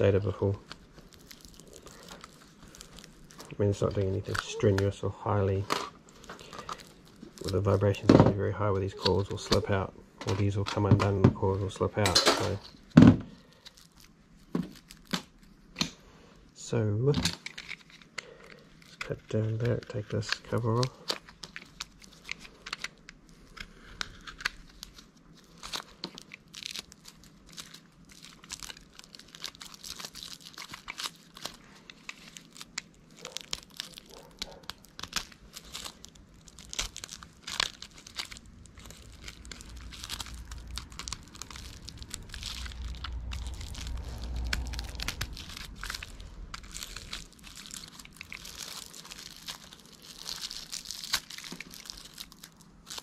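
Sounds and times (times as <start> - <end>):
low rumble: 35.7 - 50.7.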